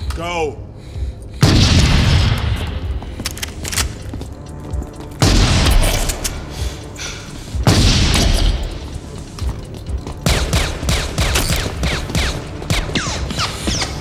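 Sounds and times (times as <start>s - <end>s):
film music score: 0.0s - 14.0s
shotgun blasts with echo: 1.4s - 2.9s, 5.2s - 6.2s, 7.6s - 8.7s.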